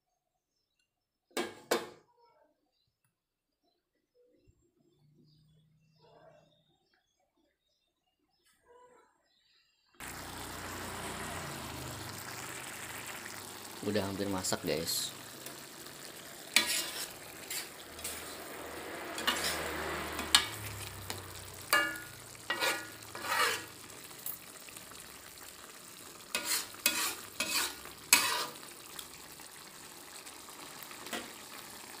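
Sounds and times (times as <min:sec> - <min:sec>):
low sizzle: 0:10.0 - 0:32.0
metal spatula scraping a wok: 0:15.5 - 0:24.1, 0:26.2 - 0:28.7.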